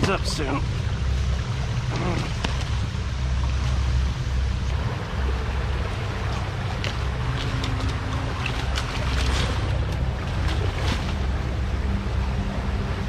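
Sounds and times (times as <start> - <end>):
creek running: 0.0 - 13.0
branches and leaves snapping: 6.3 - 11.3.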